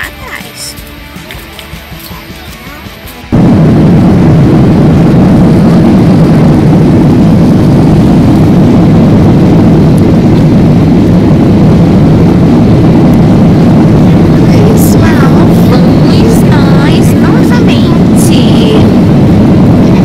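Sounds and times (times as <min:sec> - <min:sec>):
runway rumble: 0:00.0 - 0:20.0
jet engines at takeoff: 0:03.3 - 0:20.0.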